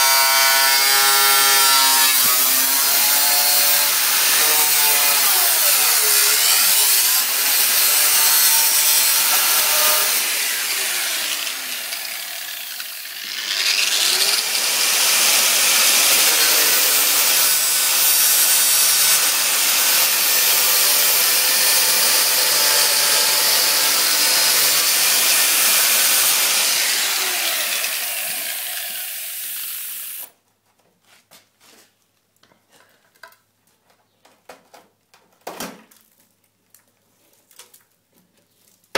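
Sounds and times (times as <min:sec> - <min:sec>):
angle grinder grinding metal: 0:00.0 - 0:30.3.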